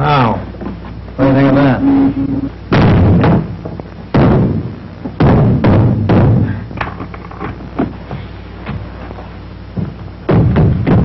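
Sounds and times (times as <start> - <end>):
feet stamping on floor: 7.4 - 11.0.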